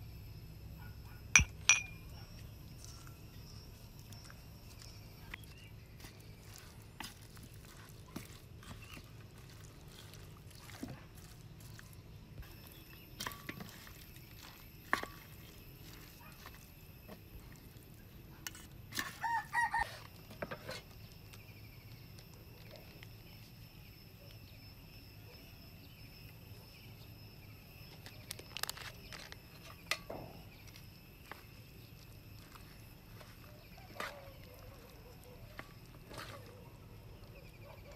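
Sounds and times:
chicken calling: 0:19.2 - 0:20.1.

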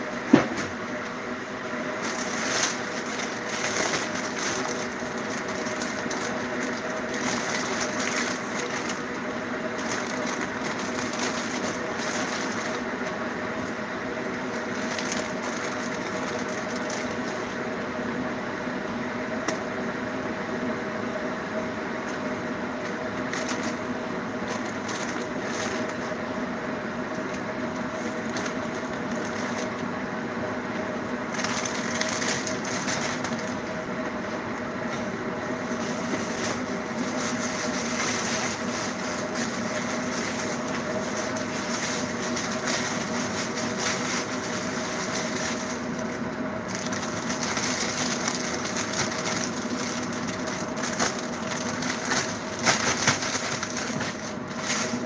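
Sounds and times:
steady low hum: 0:00.0 - 0:55.0
plastic bag crinkling: 0:02.0 - 0:13.7, 0:14.4 - 0:17.6, 0:22.1 - 0:26.2, 0:27.1 - 0:29.8, 0:31.3 - 0:33.7, 0:35.6 - 0:55.0.

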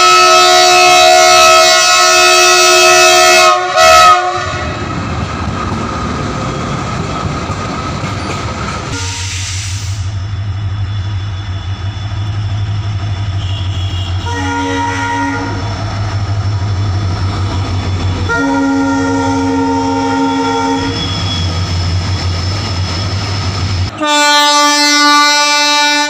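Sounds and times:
locomotive horn blast: 0:00.0 - 0:04.9, 0:08.9 - 0:10.2, 0:13.0 - 0:15.7, 0:18.1 - 0:21.6, 0:23.9 - 0:26.0
locomotive engine droning: 0:00.0 - 0:26.0
train wheels clattering on rails: 0:04.7 - 0:10.0.

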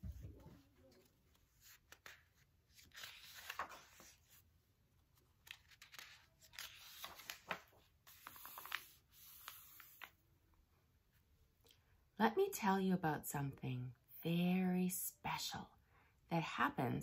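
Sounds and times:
book pages turning: 0:00.0 - 0:10.2.

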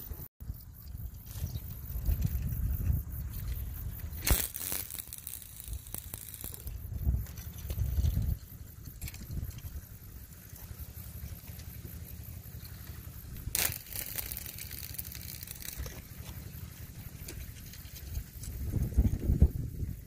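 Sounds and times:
rod handling noise: 0:04.2 - 0:06.8, 0:13.5 - 0:16.4
sharp click: 0:04.2 - 0:06.8.

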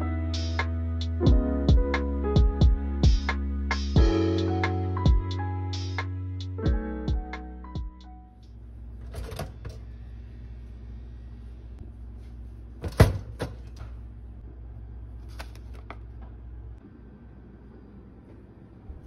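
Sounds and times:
low steady hum: 0:05.4 - 0:19.0.

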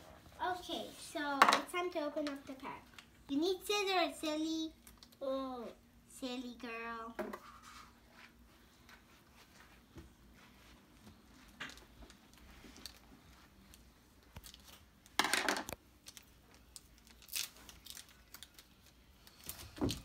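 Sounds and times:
foil pack crinkling: 0:16.0 - 0:20.0.

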